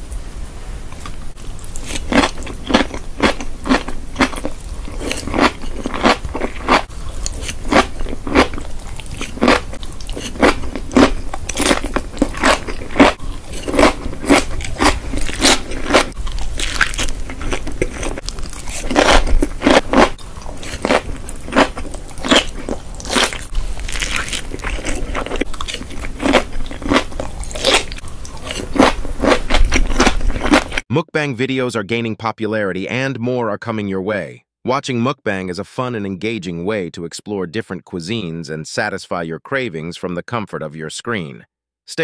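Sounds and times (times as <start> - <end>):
cucumber crunching: 1.0 - 30.8.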